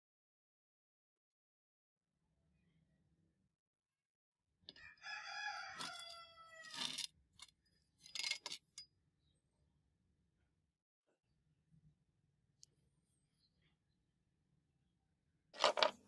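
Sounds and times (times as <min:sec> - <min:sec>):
rooster crowing: 0:04.8 - 0:06.9.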